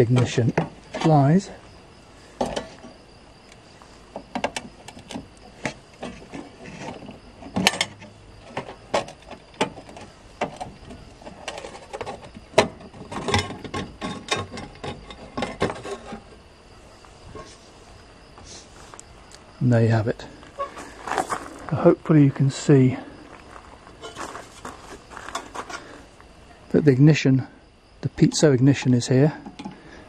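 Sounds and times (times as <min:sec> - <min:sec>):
metal clicks and knocks: 0:04.1 - 0:16.4, 0:29.4 - 0:29.8.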